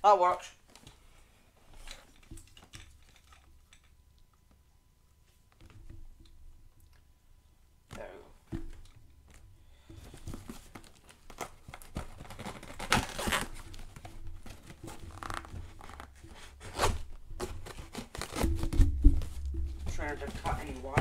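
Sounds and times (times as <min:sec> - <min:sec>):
cardboard crinkling and scraping: 0:10.0 - 0:21.0
packing tape ripping: 0:10.7 - 0:19.0.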